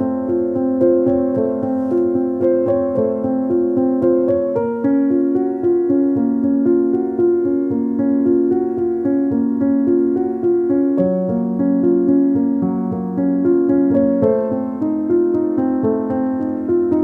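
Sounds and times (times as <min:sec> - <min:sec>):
keyboard playing repeating notes: 0:00.0 - 0:17.0.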